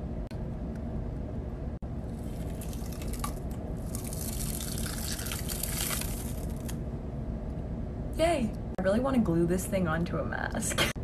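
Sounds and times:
sticky wet crackling peel: 0:02.1 - 0:06.8.

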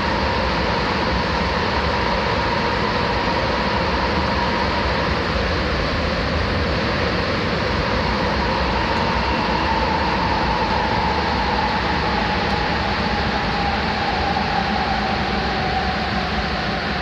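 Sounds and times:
train motor whine: 0:08.0 - 0:17.0.

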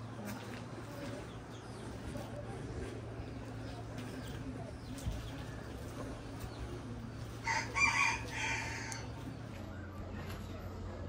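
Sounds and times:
rooster crowing: 0:07.4 - 0:09.0.

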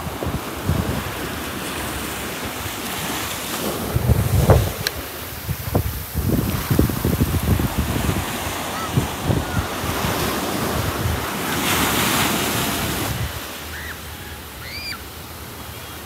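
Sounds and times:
wind buffeting microphone: 0:00.0 - 0:13.5
ocean surf on sand and rocks: 0:00.0 - 0:16.0.

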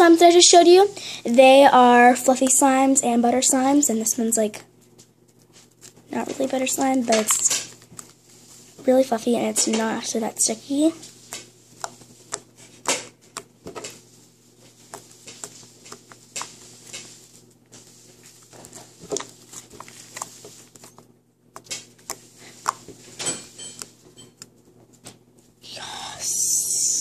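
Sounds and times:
slime being squished: 0:11.1 - 0:24.5.

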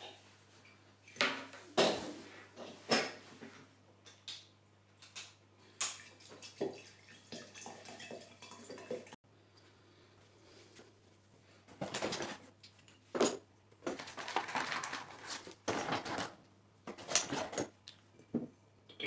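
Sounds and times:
rustling and scraping: 0:10.5 - 0:13.2, 0:13.8 - 0:17.8.

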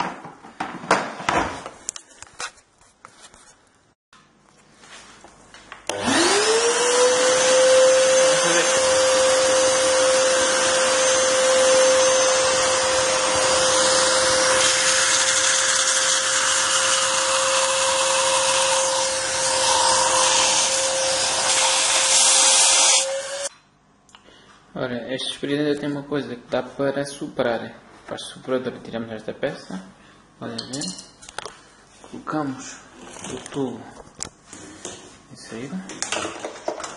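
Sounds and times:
vacuum cleaner motor whine: 0:05.9 - 0:23.5.

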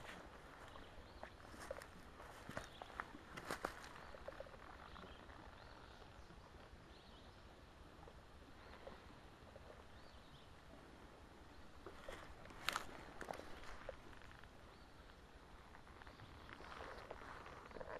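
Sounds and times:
footsteps on ground: 0:00.0 - 0:04.4, 0:12.0 - 0:14.5
faint bird chirps: 0:00.5 - 0:07.6, 0:13.2 - 0:17.9.

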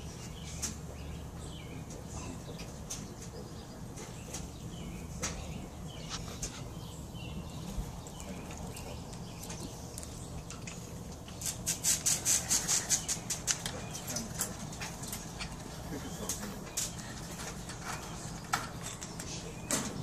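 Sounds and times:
cockatoo clicks and scratches: 0:05.2 - 0:06.8, 0:07.6 - 0:19.8.

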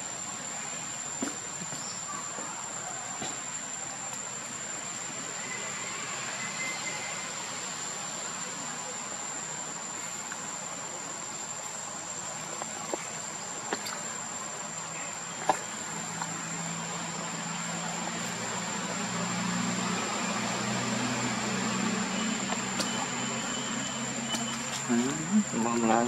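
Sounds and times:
background hiss: 0:00.0 - 0:26.0
high-pitched insect drone: 0:03.8 - 0:26.0
low engine hum: 0:09.8 - 0:26.0.

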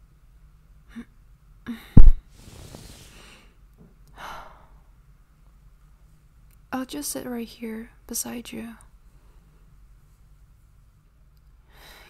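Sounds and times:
heavy low thump: 0:02.0 - 0:02.8.

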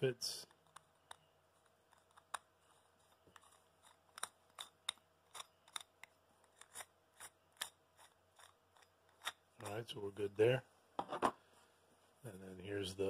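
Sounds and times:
locknut clicking on threads: 0:03.1 - 0:09.8.

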